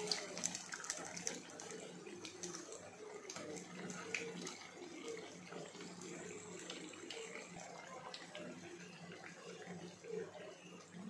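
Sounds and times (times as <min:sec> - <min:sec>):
hot oil sizzling and crackling: 0:00.0 - 0:09.4.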